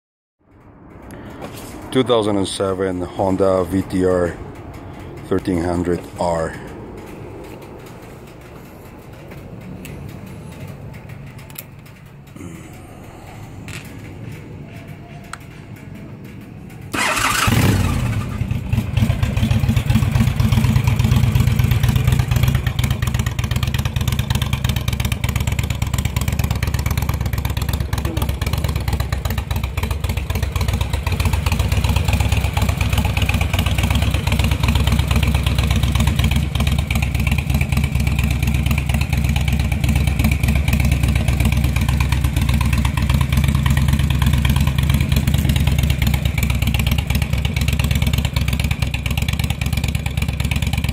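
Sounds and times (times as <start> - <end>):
motorcycle engine starting and idling: 0.4 - 50.9.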